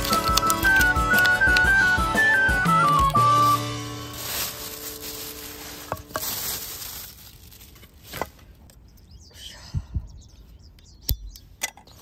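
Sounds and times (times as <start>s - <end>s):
plastic bag rustling: 0.0s - 8.6s.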